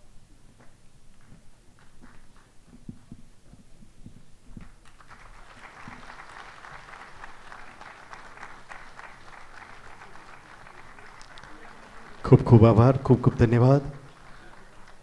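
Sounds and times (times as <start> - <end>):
audience applauding: 4.8 - 15.0.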